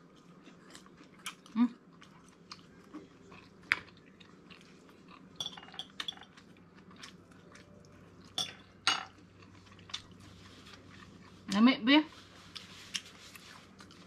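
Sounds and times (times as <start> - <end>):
cutlery clinking on plate and shells: 5.4 - 6.4.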